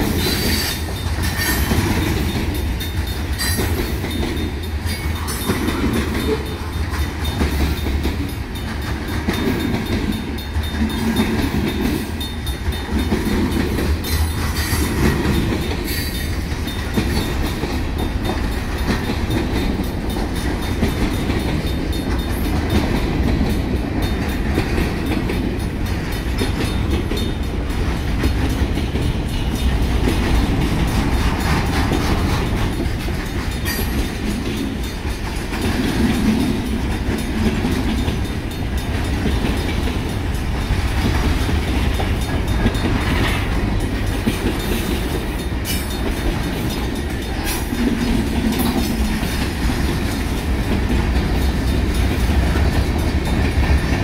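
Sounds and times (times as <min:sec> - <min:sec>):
crossing bells ringing: 0:00.0 - 0:54.0
freight train rumbling past: 0:00.0 - 0:54.0
train wheels clacking on rail joints: 0:00.0 - 0:54.0.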